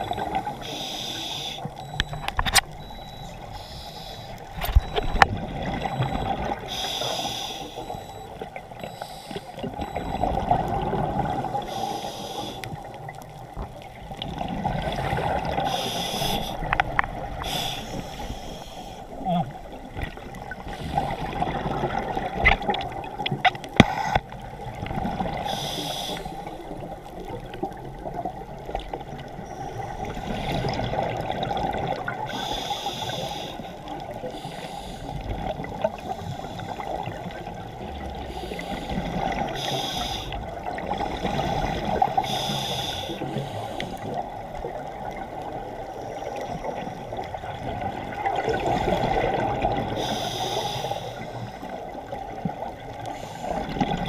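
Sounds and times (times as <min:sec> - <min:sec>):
muffled rush of water: 0:00.0 - 0:54.0
diver breathing through regulator: 0:00.2 - 0:02.2, 0:02.8 - 0:05.2, 0:05.9 - 0:10.2, 0:11.5 - 0:12.8, 0:14.7 - 0:19.6, 0:20.6 - 0:21.5, 0:25.3 - 0:26.6, 0:32.2 - 0:37.2, 0:38.2 - 0:44.2, 0:49.8 - 0:51.8, 0:53.1 - 0:53.9.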